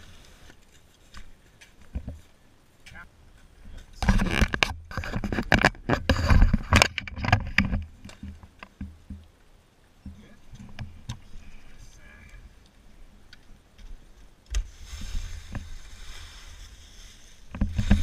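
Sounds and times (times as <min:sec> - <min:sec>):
faint clicks and scrapes: 0:00.0 - 0:18.0
camera handling rumble and knocks: 0:03.8 - 0:09.2.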